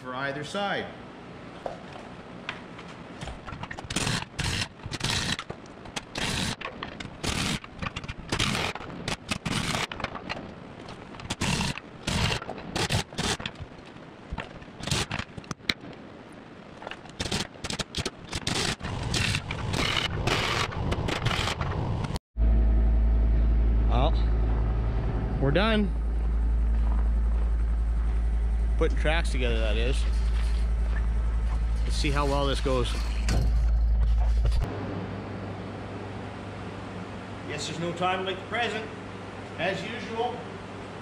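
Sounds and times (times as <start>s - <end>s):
pneumatic impact wrench bursts: 3.8s - 6.6s, 7.2s - 7.7s, 8.3s - 9.9s, 11.3s - 13.5s, 14.8s - 15.2s, 17.2s - 21.6s.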